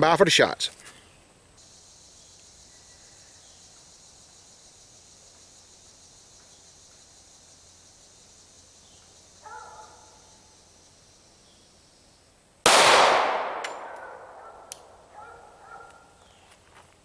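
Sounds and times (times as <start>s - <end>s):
high-pitched insect chorus: 1.6s - 12.6s.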